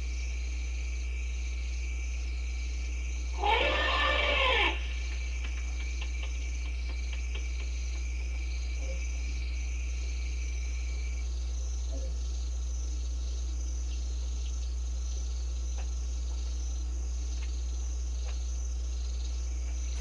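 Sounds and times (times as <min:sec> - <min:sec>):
crickets chirping: 0:00.0 - 0:20.0
low electrical hum: 0:00.0 - 0:20.0
elephant trumpeting: 0:03.4 - 0:04.9.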